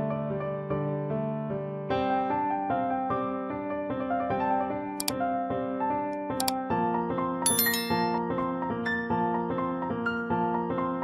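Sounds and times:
piano melody: 0:07.5 - 0:08.4.

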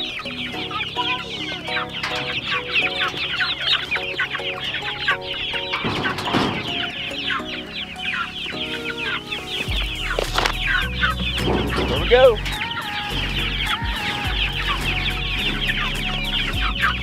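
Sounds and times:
chicks peeping: 0:00.0 - 0:17.0
rustling: 0:05.6 - 0:16.5.

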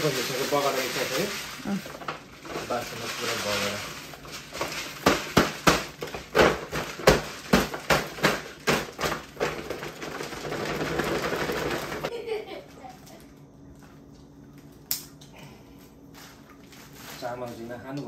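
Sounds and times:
green beans sizzling: 0:00.0 - 0:12.1.

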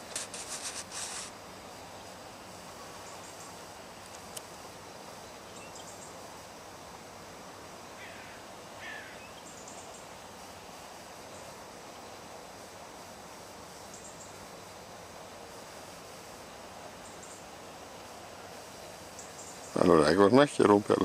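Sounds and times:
outdoor background hiss: 0:00.0 - 0:21.0
distant bird calls: 0:07.8 - 0:10.4, 0:18.6 - 0:19.8.

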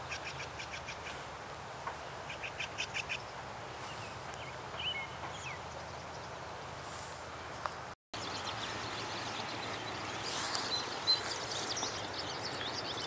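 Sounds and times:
background hiss: 0:00.0 - 0:13.0
small birds chirping: 0:02.2 - 0:06.4, 0:08.2 - 0:13.0.

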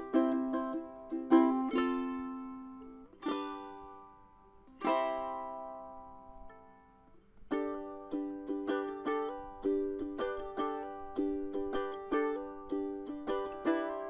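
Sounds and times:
strummed string instrument: 0:00.0 - 0:14.0.

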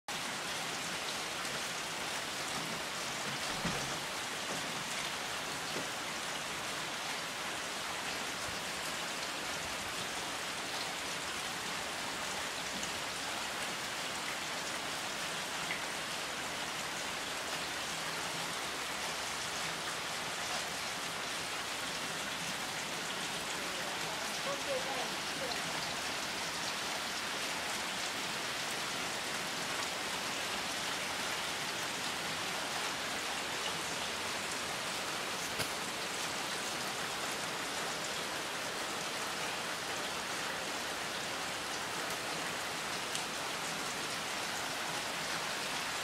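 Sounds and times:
steady rain hiss: 0:00.1 - 0:46.0
faint raindrop ticks: 0:35.4 - 0:35.8, 0:43.1 - 0:43.3.

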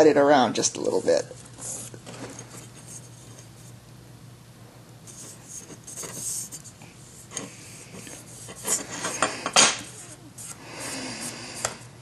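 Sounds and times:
paper scraping and rustling: 0:05.1 - 0:10.6.

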